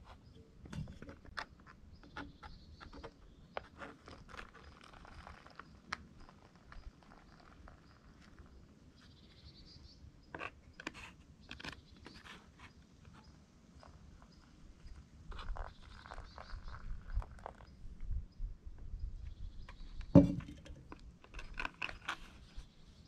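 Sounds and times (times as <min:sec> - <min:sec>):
water trickling into a pouch: 0:03.7 - 0:08.8, 0:14.9 - 0:18.0
pouch crinkling: 0:03.8 - 0:08.5.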